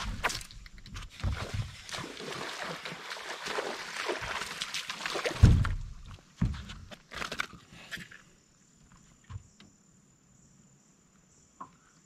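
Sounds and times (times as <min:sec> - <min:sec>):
insects buzzing: 0:07.9 - 0:12.0.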